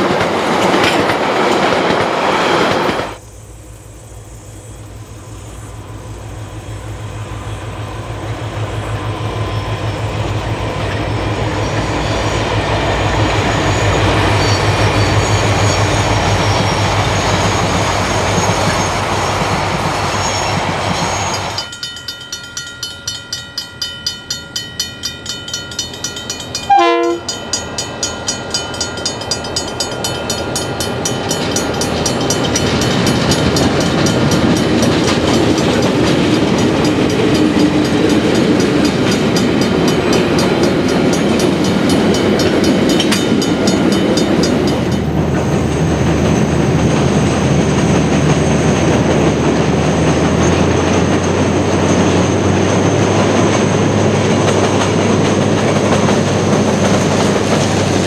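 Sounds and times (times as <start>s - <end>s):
train wheels clacking on rail joints: 0.0s - 3.2s, 10.4s - 58.0s
diesel locomotive rumble: 0.0s - 58.0s
train horn blast: 26.6s - 27.4s.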